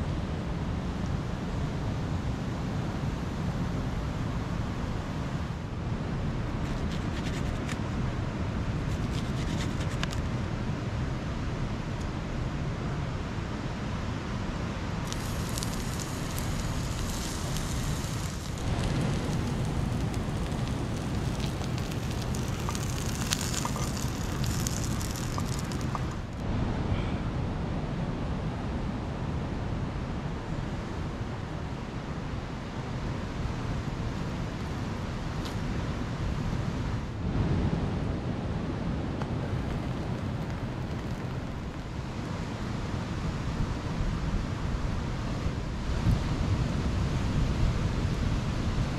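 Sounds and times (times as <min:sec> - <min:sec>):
wind: 0:00.0 - 0:48.9
cooking fire crackling: 0:14.9 - 0:26.5, 0:39.3 - 0:42.7
surf rumbling: 0:15.0 - 0:26.5
wind buffeting microphone: 0:15.0 - 0:26.5.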